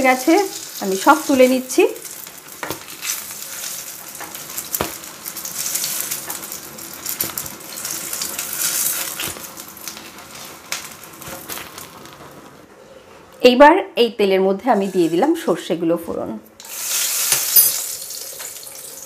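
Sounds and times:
hot oil sizzling in a pan: 0.0 - 12.1, 16.6 - 19.0.

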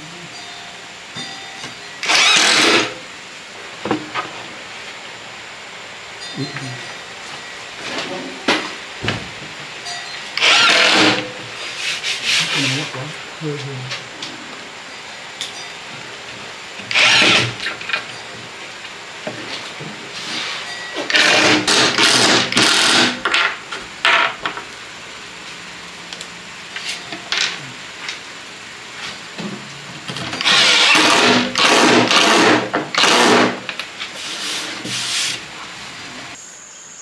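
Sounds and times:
cordless drill boring into wood: 2.0 - 3.0, 10.4 - 11.3, 16.8 - 17.7, 21.1 - 23.2, 30.4 - 33.6.

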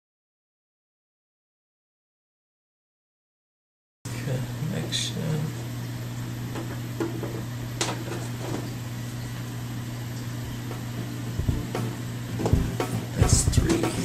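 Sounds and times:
steady low hum: 4.1 - 14.0.

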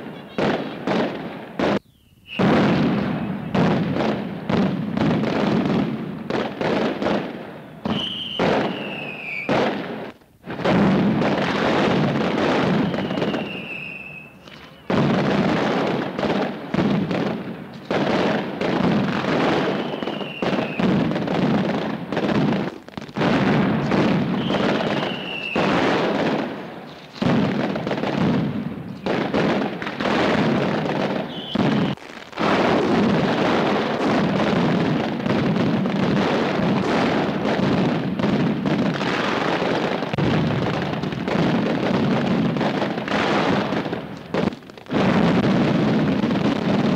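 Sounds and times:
firecrackers banging: 0.0 - 46.9
short falling whistles: 1.8 - 2.6, 7.9 - 9.6, 12.8 - 14.9, 19.7 - 20.8, 24.4 - 25.7, 31.3 - 32.0.

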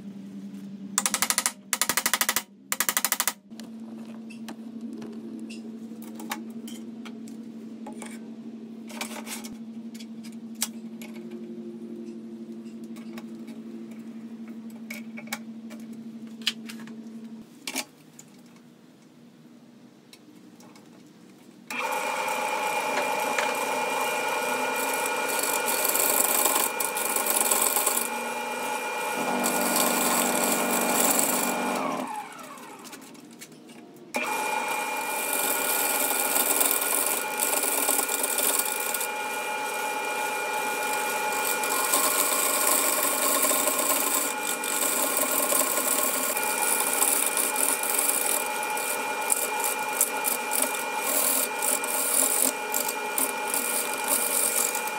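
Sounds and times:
wood lathe motor whine: 21.7 - 33.0, 34.2 - 54.9.

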